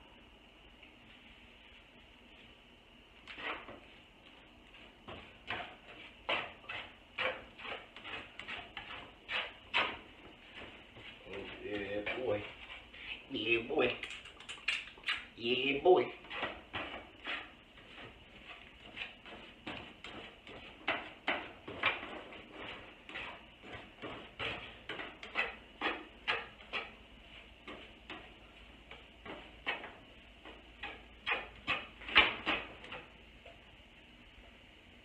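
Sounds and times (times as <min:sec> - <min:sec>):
fork scraping a frying pan: 0:03.3 - 0:03.8, 0:05.1 - 0:13.3, 0:16.0 - 0:33.1.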